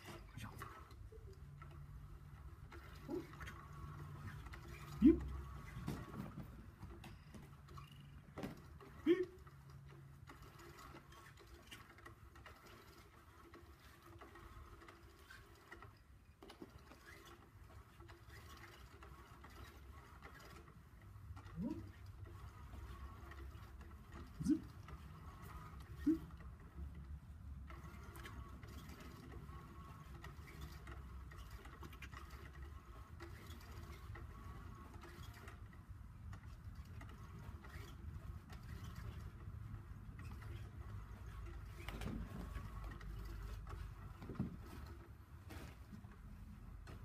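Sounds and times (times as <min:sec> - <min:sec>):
small motor whirring: 0:00.0 - 0:06.1
motorized toy whirring: 0:00.0 - 0:45.1.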